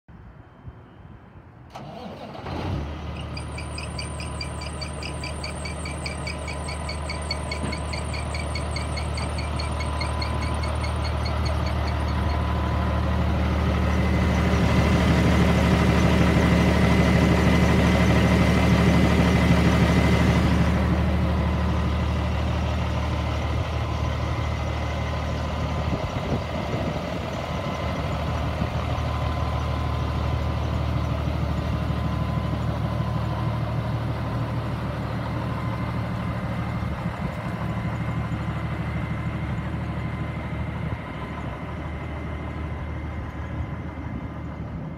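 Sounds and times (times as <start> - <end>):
diesel truck engine idling: 2.8 - 44.9.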